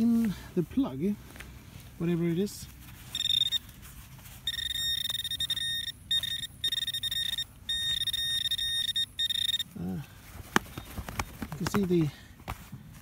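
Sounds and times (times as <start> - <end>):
metal detector alarm tone: 3.1 - 3.7, 4.4 - 9.8.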